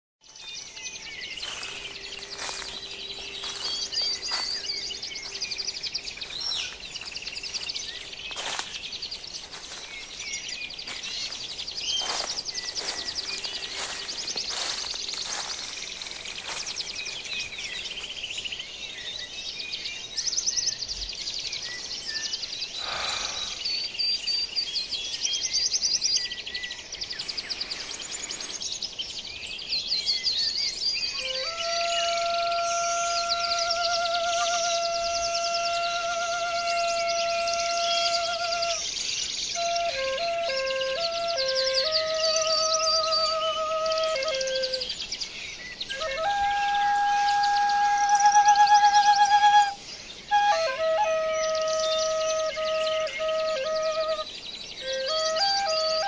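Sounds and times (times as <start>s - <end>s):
birds chirping and calling: 0.2s - 56.0s
insect trills: 1.4s - 4.7s, 5.3s - 10.2s, 10.9s - 18.2s.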